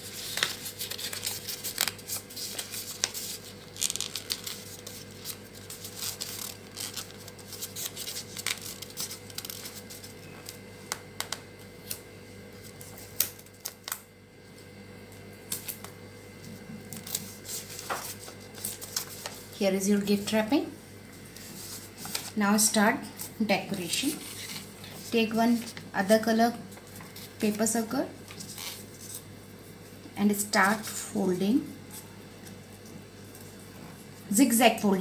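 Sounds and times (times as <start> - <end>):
wrapping paper crinkling and rustling: 0.0 - 14.0, 15.5 - 19.6, 21.3 - 22.4, 23.2 - 26.0, 28.2 - 29.3.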